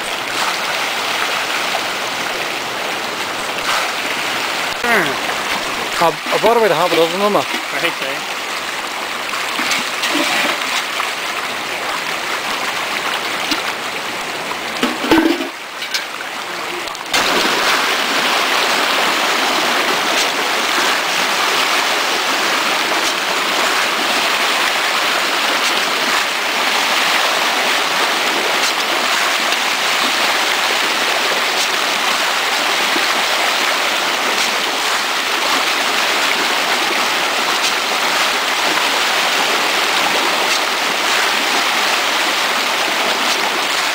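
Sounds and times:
fish splashing at water surface: 0.0 - 2.0, 3.4 - 7.7, 9.3 - 11.0, 17.1 - 43.9.

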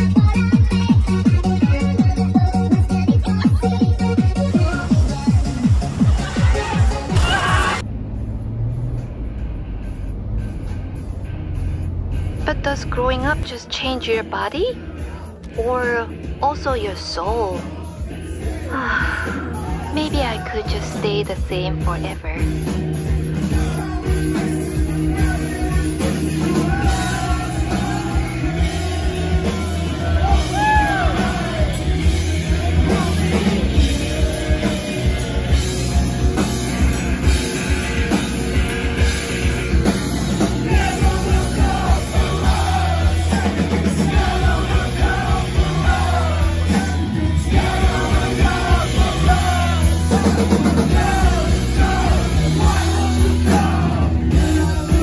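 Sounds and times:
person singing: 0.0 - 5.8, 25.2 - 55.0
drum kit beat: 0.0 - 7.9, 8.9 - 14.8, 15.5 - 55.0
electric bass: 0.0 - 55.0.

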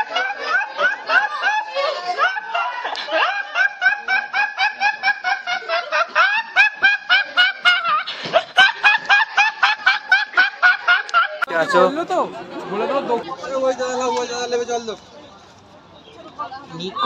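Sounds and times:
young man laughing hard: 0.0 - 11.9.

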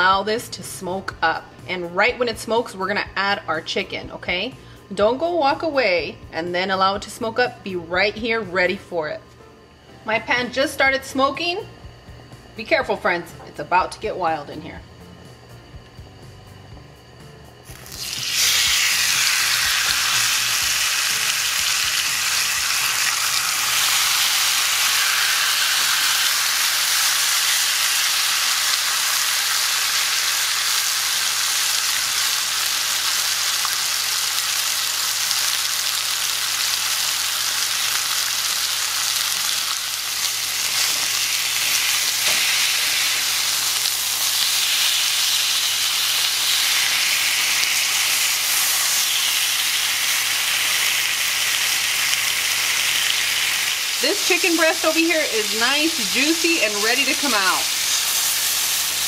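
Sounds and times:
chicken sizzling in a grill pan: 17.6 - 59.0.

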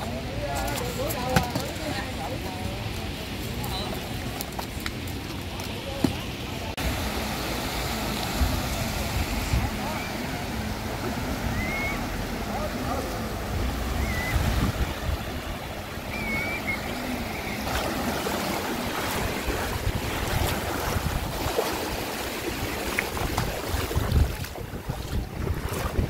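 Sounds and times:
sea surf washing onto beach: 0.0 - 26.0
wind gusting on microphone: 13.2 - 26.0.

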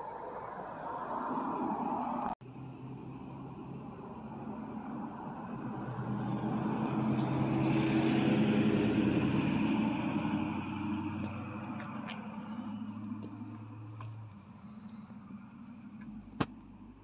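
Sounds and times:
car engine driving past: 0.7 - 17.0.

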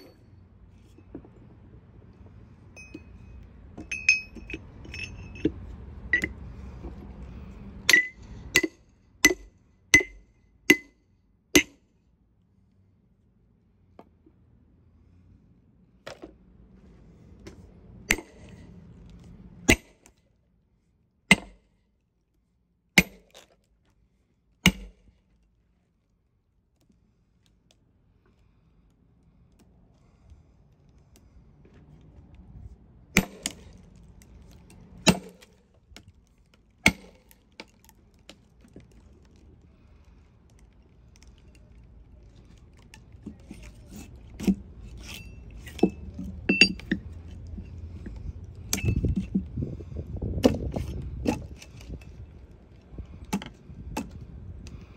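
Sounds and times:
wedges struck into log: 21.3 - 21.6, 23.0 - 23.4, 24.6 - 25.0, 35.0 - 35.5, 36.8 - 37.4.

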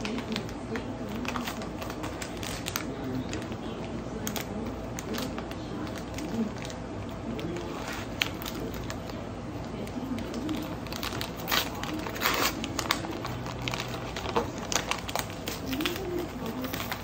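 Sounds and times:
paper mailer crinkling and tearing: 0.0 - 17.0.

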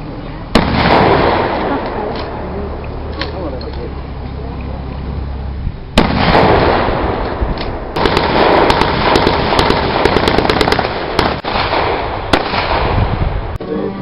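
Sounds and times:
gunshots: 0.5 - 2.5, 6.0 - 13.2.

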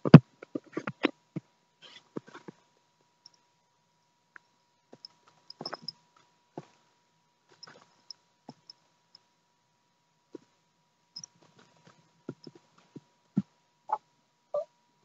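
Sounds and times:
handling clicks and bumps: 5.0 - 6.0.

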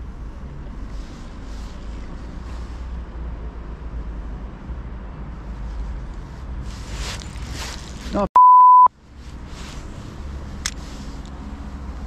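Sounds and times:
censor bleep: 8.4 - 8.9
low outdoor rumble: 8.9 - 12.0.

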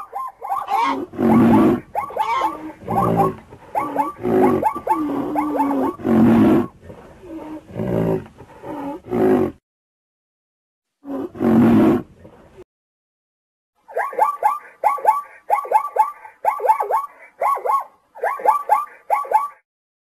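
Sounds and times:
higher wavering animal calls: 0.0 - 7.7
deep animal roars: 0.9 - 9.6, 11.0 - 12.5.

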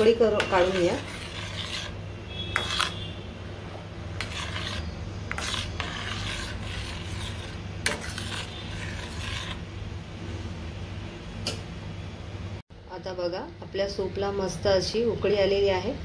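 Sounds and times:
spatula scraping a steel pot: 0.0 - 3.2, 4.1 - 9.7.

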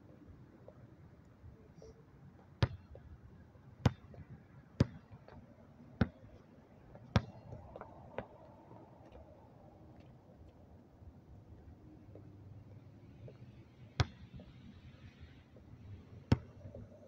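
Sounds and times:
basketball bouncing on a court: 2.6 - 3.0, 3.8 - 5.4, 6.0 - 6.3, 7.1 - 7.6, 14.0 - 14.5, 16.2 - 16.9.

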